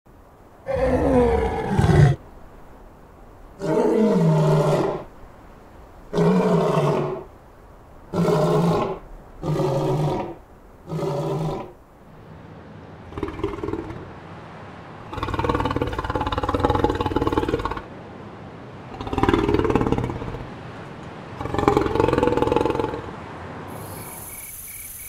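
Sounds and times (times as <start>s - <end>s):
lion roaring: 0.7s - 2.2s, 3.6s - 5.1s, 6.1s - 7.3s, 8.1s - 11.8s, 13.0s - 14.1s, 15.1s - 17.8s, 18.9s - 20.5s, 21.4s - 23.1s.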